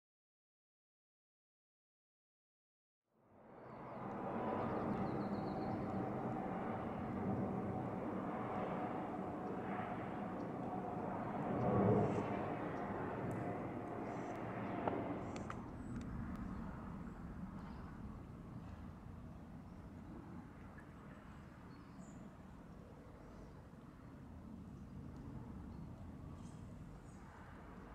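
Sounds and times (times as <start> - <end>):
jet engine drone: 3.4 - 21.3.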